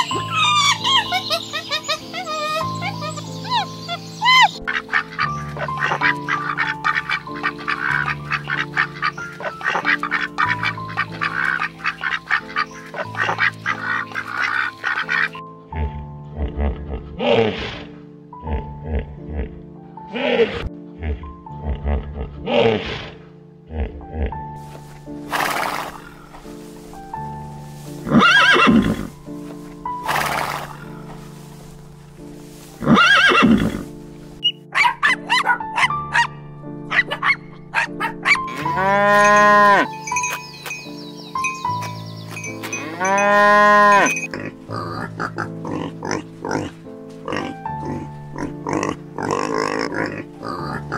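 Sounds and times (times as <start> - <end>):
geese honking: 0.0 - 15.5, 25.2 - 31.7, 36.9 - 50.9
background music with held notes: 0.0 - 50.9
horse whinnying: 25.3 - 26.3, 28.1 - 29.2, 32.8 - 33.8, 38.2 - 40.3, 42.7 - 44.3.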